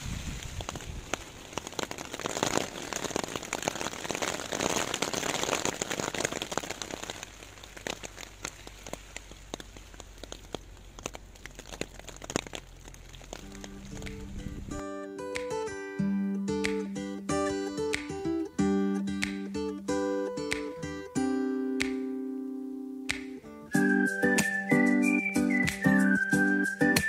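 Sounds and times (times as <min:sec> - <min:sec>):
rain drops tapping on a surface: 0:00.0 - 0:15.7, 0:16.5 - 0:21.0, 0:23.1 - 0:27.0.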